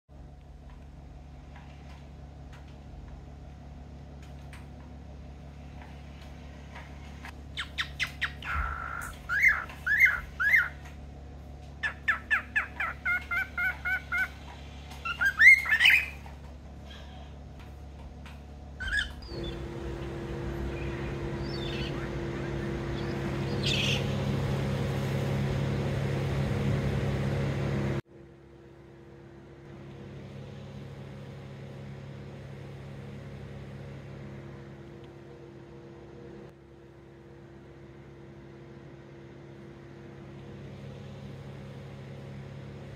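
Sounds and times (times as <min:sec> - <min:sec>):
steady hum with rushing noise: 0:00.2 - 0:28.0
cockatiel chirping and whistling: 0:07.6 - 0:10.8, 0:11.8 - 0:14.4, 0:15.0 - 0:16.2, 0:18.8 - 0:19.6, 0:21.4 - 0:24.0.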